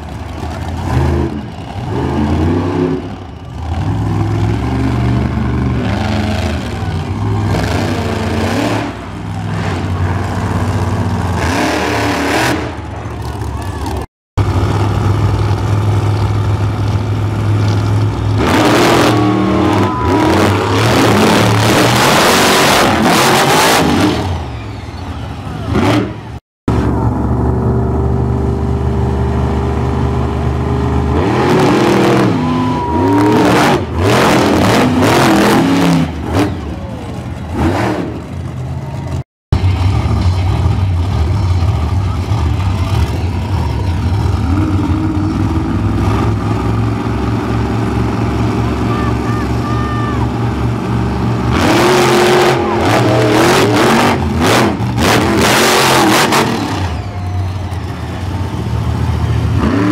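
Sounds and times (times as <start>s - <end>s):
truck engines idling: 0.0s - 59.9s
truck engines revving hard: 0.0s - 59.9s.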